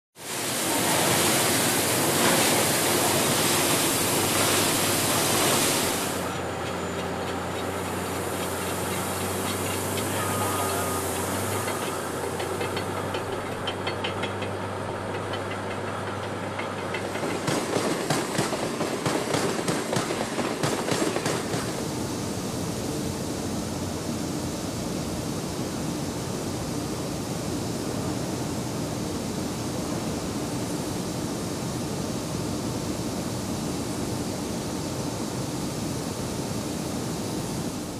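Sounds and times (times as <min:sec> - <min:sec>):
blast furnace roaring: 0:00.2 - 0:19.3
machinery humming: 0:00.2 - 0:37.9.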